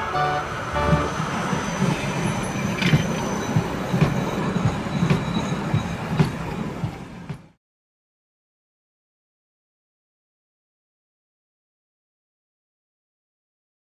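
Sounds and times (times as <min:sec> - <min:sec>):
faint high squeal: 0:00.0 - 0:06.8
tram wheels rumbling on rails: 0:00.0 - 0:07.6.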